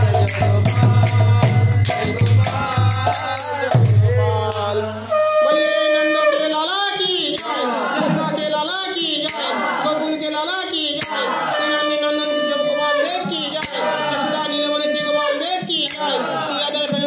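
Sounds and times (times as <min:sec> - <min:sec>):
sharp percussive strikes: 0:00.0 - 0:04.8, 0:07.3 - 0:08.5, 0:09.2 - 0:10.1, 0:10.9 - 0:12.0, 0:13.2 - 0:15.1, 0:15.8 - 0:17.0
group singing: 0:00.0 - 0:17.0.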